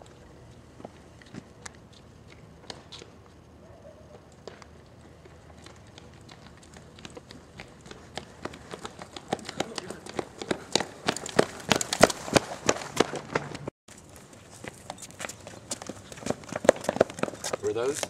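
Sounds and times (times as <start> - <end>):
footsteps running on concrete: 4.5 - 13.7, 14.6 - 18.0.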